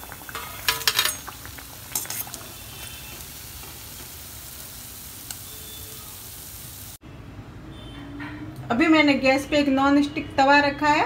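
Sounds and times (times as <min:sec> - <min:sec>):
food sizzling in hot oil: 0:00.0 - 0:07.0
ladle clattering in pan: 0:00.2 - 0:02.4.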